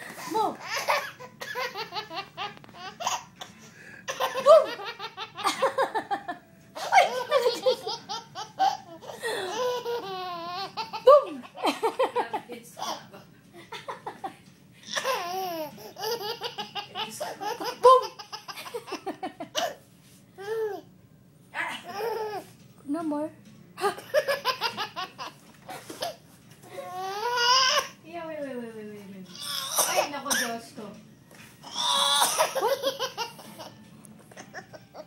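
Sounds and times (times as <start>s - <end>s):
toddler laughing: 0.2s - 6.1s, 6.8s - 12.1s, 14.9s - 19.8s, 21.9s - 22.5s, 23.9s - 26.2s, 31.7s - 35.0s.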